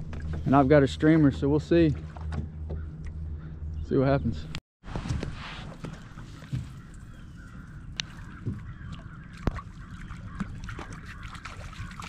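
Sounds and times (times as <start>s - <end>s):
faint bird calls: 2.6s - 4.4s, 5.8s - 12.0s.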